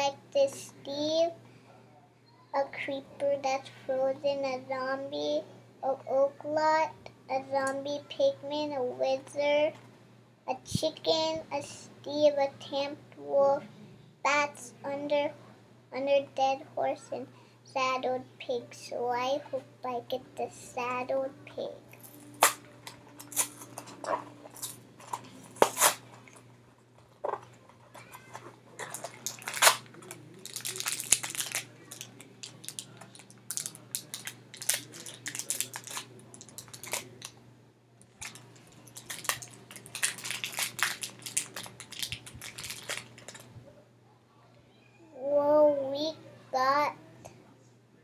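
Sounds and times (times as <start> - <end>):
packaging crinkling: 22.0 - 37.4, 38.0 - 43.5.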